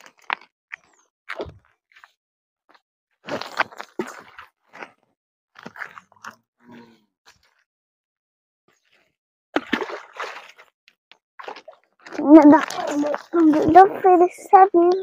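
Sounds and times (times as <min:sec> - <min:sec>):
gravel crunching underfoot: 0:03.2 - 0:06.1.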